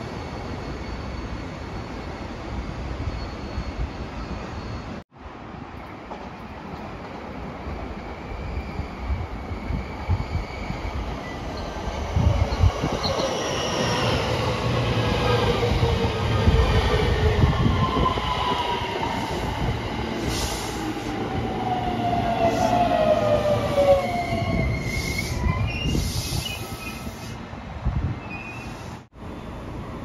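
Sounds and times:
high wheel or brake squeals: 24.3s - 27.4s.

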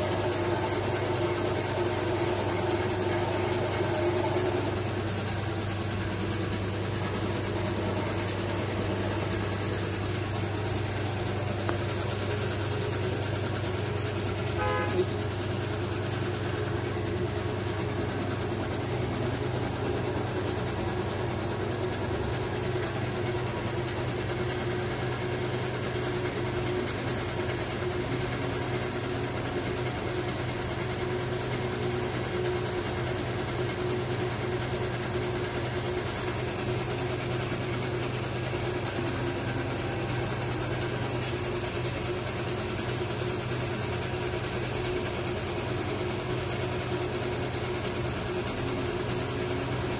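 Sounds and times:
machine motor humming: 0.0s - 23.5s, 36.2s - 43.9s.

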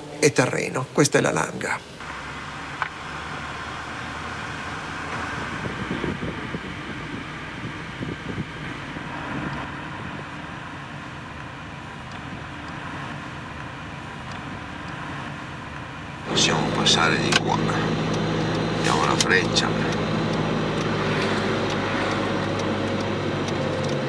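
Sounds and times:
car engine and road noise: 1.9s - 24.0s
low rumbling: 2.0s - 24.0s.

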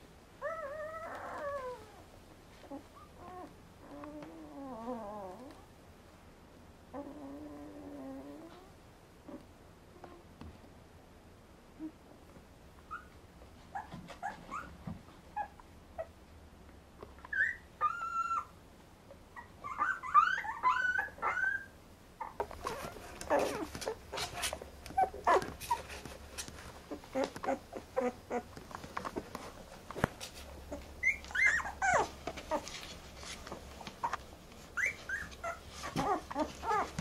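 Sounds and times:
puppies squeaking and whimpering: 17.2s - 18.6s, 19.4s - 26.2s, 26.9s - 29.3s, 30.7s - 37.0s
rustling noise: 22.4s - 37.0s.

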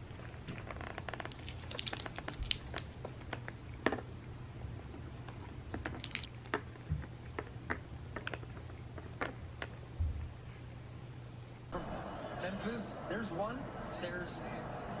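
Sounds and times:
cat crunching food: 0.0s - 9.9s.

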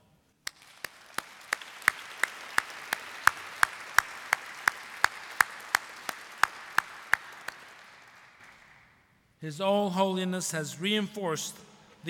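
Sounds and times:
person clapping close by: 0.4s - 8.8s
audience applauding: 0.5s - 9.0s.

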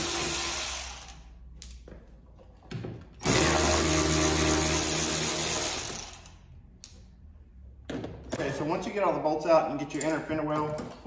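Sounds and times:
power drill running: 0.0s - 1.2s, 3.2s - 6.4s.

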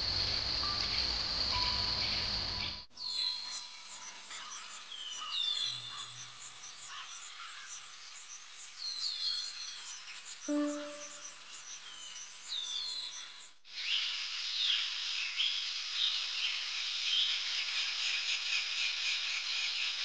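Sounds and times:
chorus of insects: 0.0s - 20.0s
low ringing tone: 10.5s - 11.3s.

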